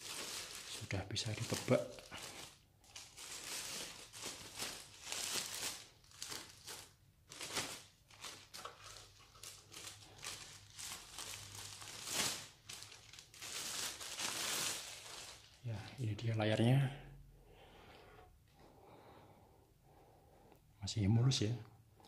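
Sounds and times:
plastic bag crinkling: 0.0s - 16.0s.

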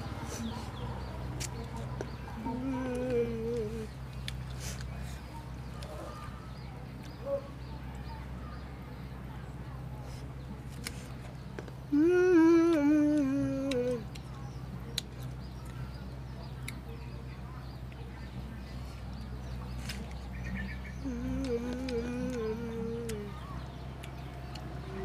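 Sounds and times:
boy humming: 2.5s - 3.9s, 11.9s - 14.1s, 21.0s - 23.4s
chewing clicks: 2.8s - 5.0s, 12.7s - 15.8s, 16.6s - 16.9s, 21.0s - 25.0s.

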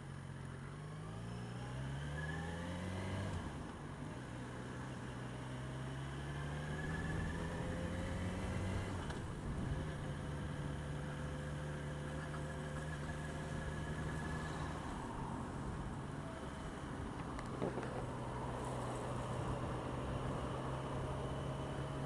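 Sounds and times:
motorcycle engine riding: 6.8s - 22.0s.

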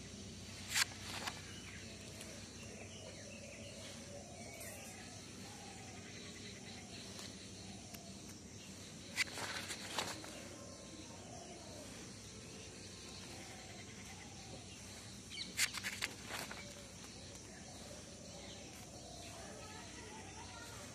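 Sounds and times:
faint background noise: 0.0s - 20.9s
notebook pages being turned: 0.6s - 1.6s, 9.1s - 10.6s, 15.6s - 16.9s.

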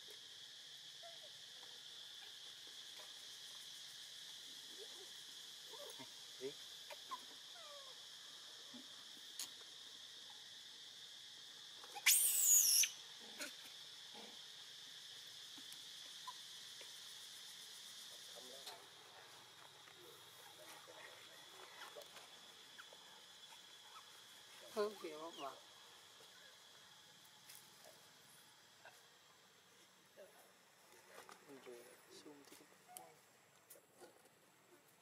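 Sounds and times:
high insect drone: 0.0s - 35.0s
high-pitched squealing call: 11.9s - 13.0s.

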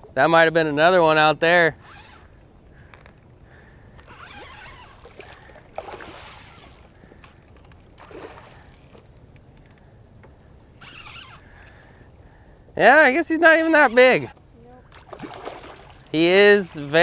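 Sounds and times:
fishing reel cranking: 1.8s - 2.4s, 4.0s - 5.2s, 5.8s - 9.2s, 10.8s - 11.6s
water splashing: 4.1s - 6.8s, 7.9s - 8.9s, 14.8s - 17.0s.

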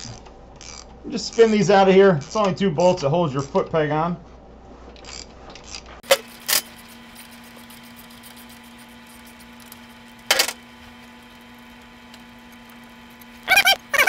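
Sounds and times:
faint steady hum: 0.0s - 14.0s.

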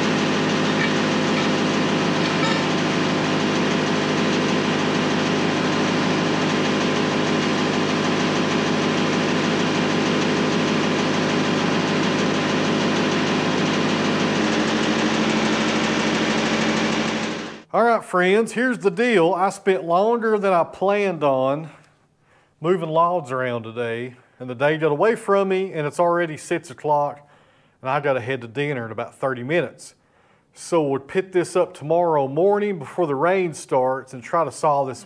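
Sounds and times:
engine idling: 0.0s - 17.7s.

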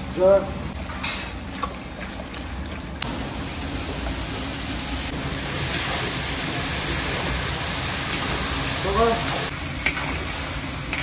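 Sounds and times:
vegetables sizzling in oil: 3.0s - 11.0s.

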